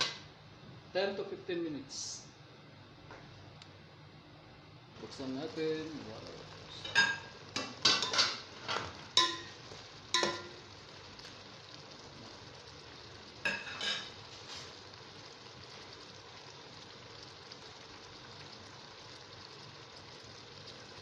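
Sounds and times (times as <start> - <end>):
pot simmering hiss: 4.6 - 21.0
metal pot and lid clanking: 6.7 - 10.6, 13.4 - 14.2.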